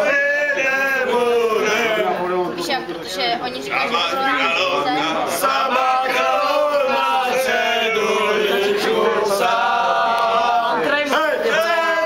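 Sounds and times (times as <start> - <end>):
men singing a cappella: 0.0 - 2.3, 3.8 - 12.0.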